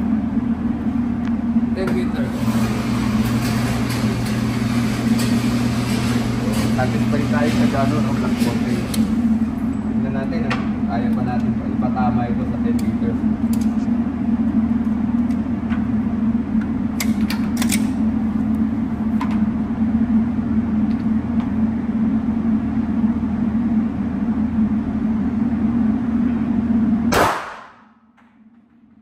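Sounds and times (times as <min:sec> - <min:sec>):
motor stopping clunk: 0:01.9 - 0:09.2.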